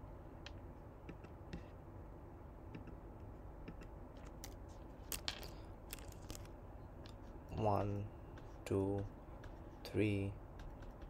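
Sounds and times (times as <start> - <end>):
low steady hum: 0.0 - 11.0
computer mouse clicks: 2.7 - 3.0, 3.6 - 4.6, 10.5 - 11.0.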